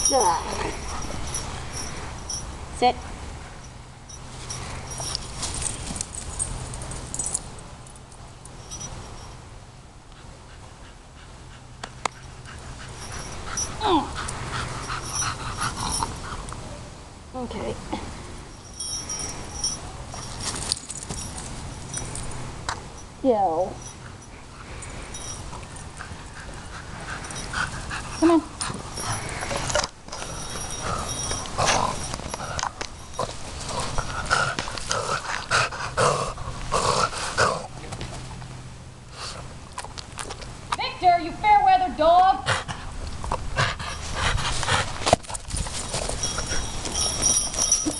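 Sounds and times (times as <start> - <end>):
dog panting: 10.1 - 16.6, 25.6 - 29.7, 33.6 - 37.7, 42.4 - 42.9, 43.5 - 45.2.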